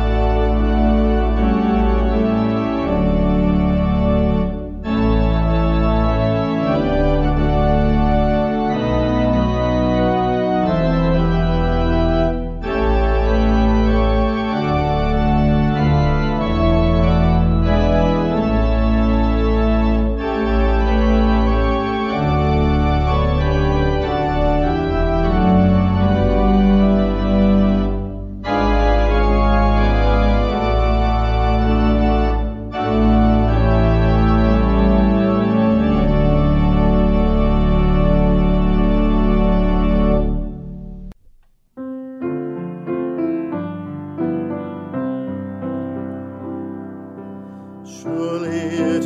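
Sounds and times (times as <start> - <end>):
organ chords with deep bass: 0.0 - 41.2, 47.9 - 49.0.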